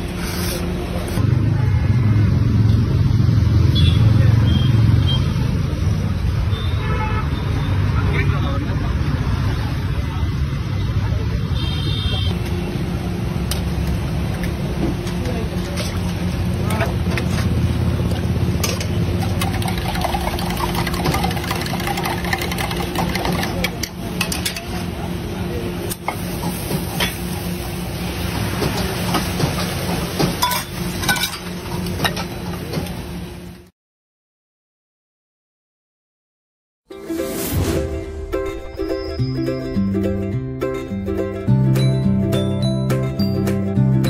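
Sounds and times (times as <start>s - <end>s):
city road traffic rumble: 0.0s - 33.6s
metal utensils clinking on griddle: 18.6s - 24.8s, 30.3s - 32.3s
egg frying: 19.0s - 23.9s
high-pitched beep: 37.8s - 40.2s.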